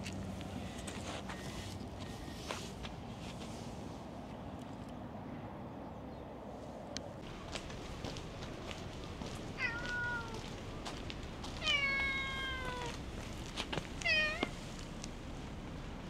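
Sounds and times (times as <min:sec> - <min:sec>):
cat meowing: 0:09.6 - 0:10.5, 0:11.6 - 0:13.0, 0:14.0 - 0:14.6.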